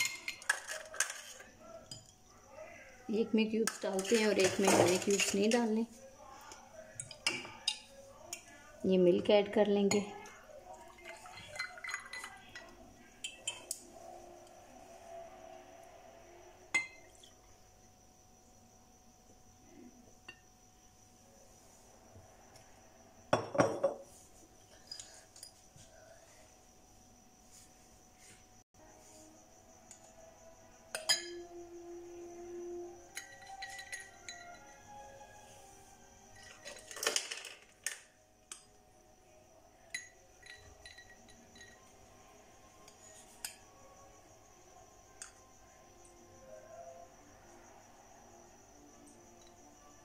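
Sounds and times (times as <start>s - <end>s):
glasses clinking: 0.0s - 2.2s, 7.0s - 8.0s, 10.9s - 13.8s, 16.7s - 17.3s, 23.3s - 25.6s, 30.9s - 31.5s, 33.1s - 34.8s, 36.3s - 37.6s, 39.9s - 42.0s.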